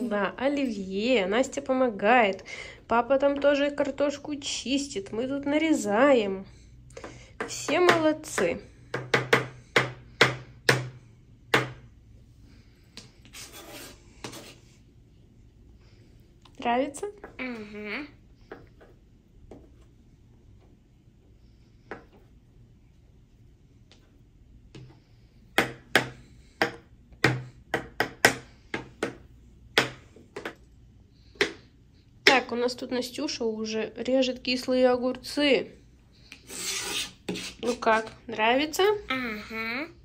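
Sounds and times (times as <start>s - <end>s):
knife scraping: 13.3s - 14.7s, 36.4s - 38.1s.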